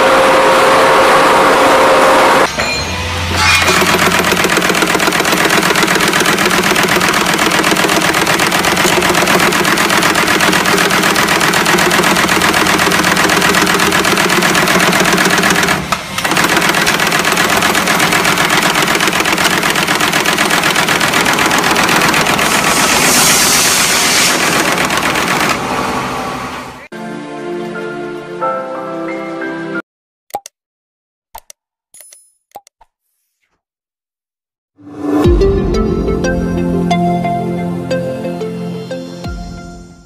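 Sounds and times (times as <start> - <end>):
machine hum: 0.0 - 26.9
tufting machine clatter: 3.4 - 25.9
hiss: 22.4 - 24.6.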